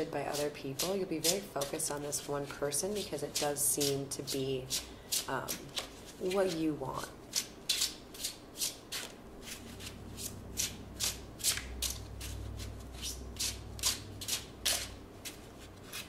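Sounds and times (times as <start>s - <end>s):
cards being shuffled: 4.7s - 6.6s.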